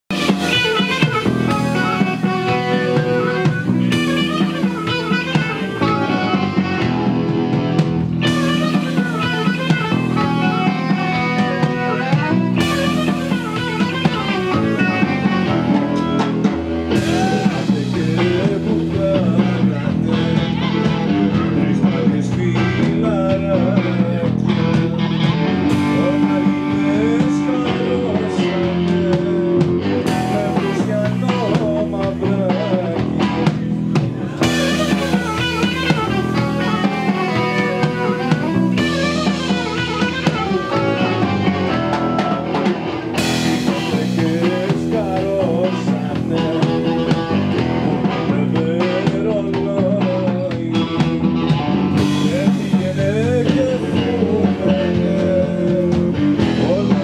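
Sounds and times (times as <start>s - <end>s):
electric guitars: 0.0s - 57.0s
harmonica playing lead: 0.1s - 21.8s, 34.2s - 48.8s
drum kit: 0.1s - 57.0s.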